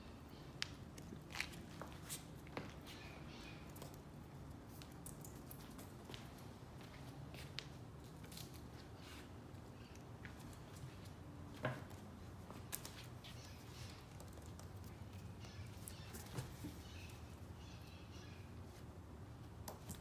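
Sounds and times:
claws and toy clicking on floor: 3.6s - 6.4s, 11.9s - 16.5s.

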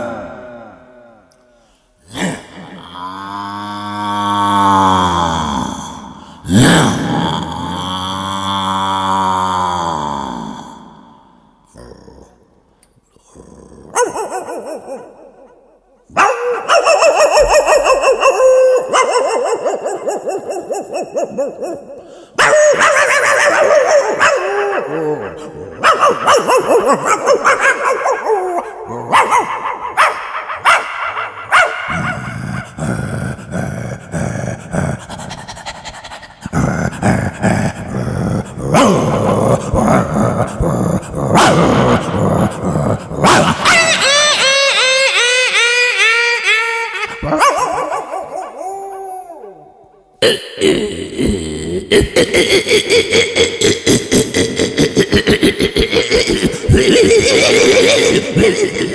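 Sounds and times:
man imitating dog growls and barks: 0.0s - 58.9s
man making whining yelps: 16.1s - 32.8s, 40.4s - 50.1s.

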